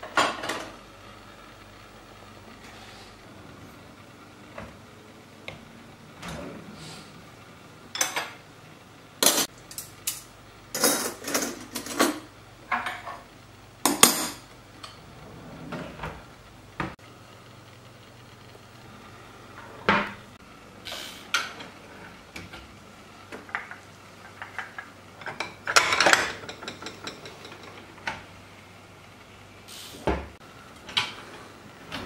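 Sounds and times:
cutlery clinking and clattering: 9.2s - 13.2s, 23.5s - 27.8s.

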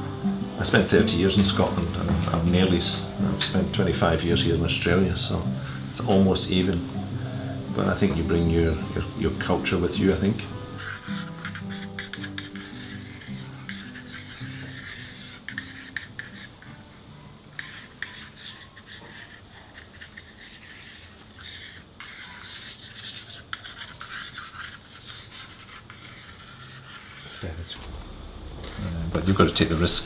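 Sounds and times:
stick scratching on paper: 10.0s - 17.0s, 17.6s - 30.0s.

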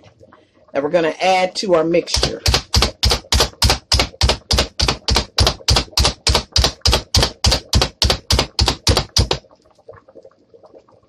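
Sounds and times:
plunger chopper clacking: 2.1s - 9.4s.

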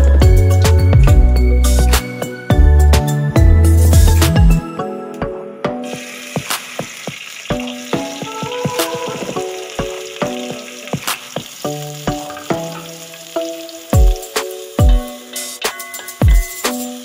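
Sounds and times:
background music with plucked notes: 0.0s - 17.0s
onions sizzling in hot oil: 5.8s - 17.0s.

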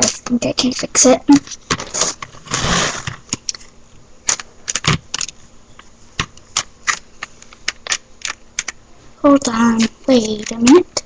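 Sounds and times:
plastic toy parts clicking and rattling: 0.0s - 2.3s, 3.3s - 8.8s, 9.4s - 11.0s.

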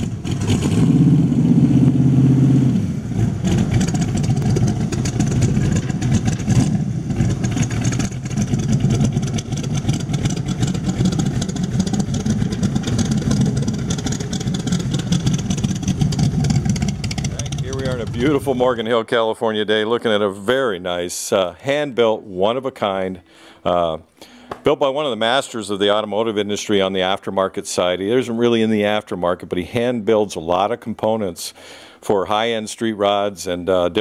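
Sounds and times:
car engine running: 0.0s - 18.9s.

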